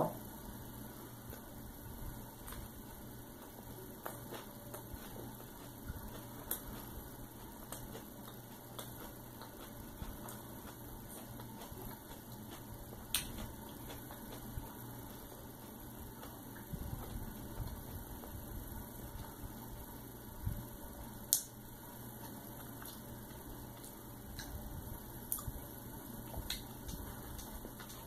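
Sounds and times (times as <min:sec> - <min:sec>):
steady low hum: 0:00.0 - 0:28.0
chewing with mouth clicks: 0:03.3 - 0:18.4, 0:22.2 - 0:24.6, 0:26.2 - 0:28.0.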